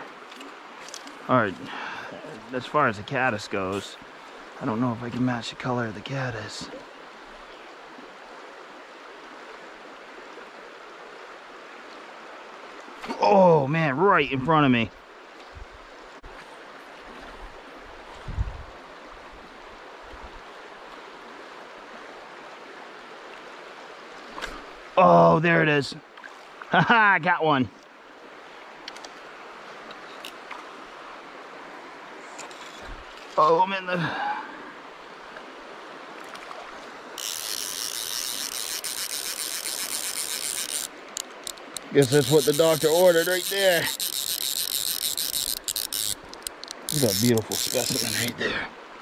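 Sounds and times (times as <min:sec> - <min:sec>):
stream flowing over rocks: 0:00.0 - 0:49.0
fishing reel drag ratcheting: 0:37.2 - 0:48.4.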